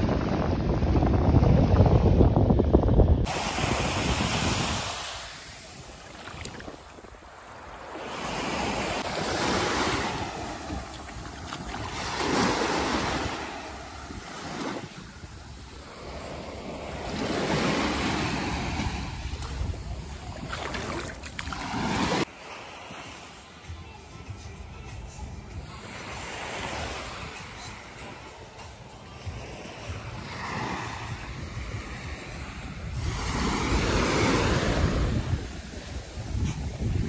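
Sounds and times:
wind rumbling on microphone: 0:00.0 - 0:22.3, 0:29.8 - 0:37.0
small waves breaking on sand: 0:03.2 - 0:23.6, 0:29.1 - 0:37.0.

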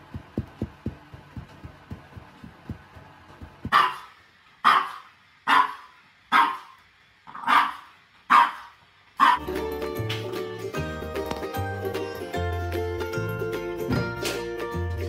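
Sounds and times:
soft low thumps: 0:00.0 - 0:03.8
dog barking: 0:03.7 - 0:09.4.

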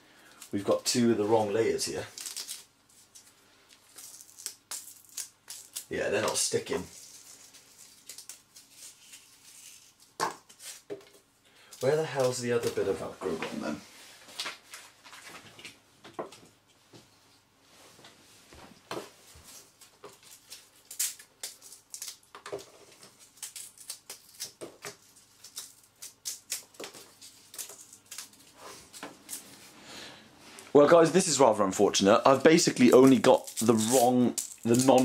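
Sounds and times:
soft rustles of handling: 0:05.9 - 0:20.8.

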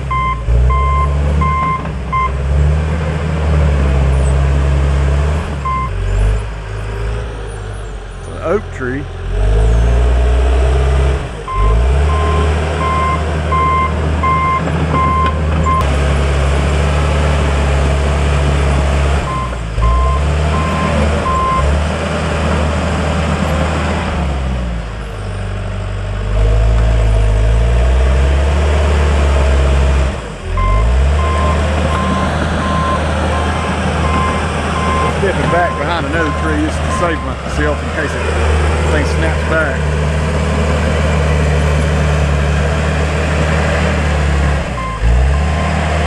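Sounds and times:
diesel engine working under load: 0:00.0 - 0:46.0
reversing alarm beeping: 0:00.1 - 0:02.4, 0:05.6 - 0:06.0, 0:11.5 - 0:15.8, 0:19.3 - 0:21.7, 0:30.6 - 0:37.4.

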